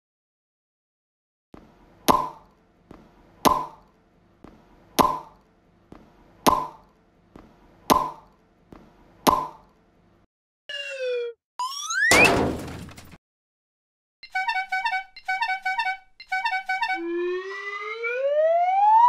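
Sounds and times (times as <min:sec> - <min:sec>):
pop sound effect: 0:02.1 - 0:02.5, 0:03.4 - 0:03.8, 0:05.0 - 0:05.4, 0:06.5 - 0:06.9, 0:07.9 - 0:08.3, 0:09.3 - 0:09.7.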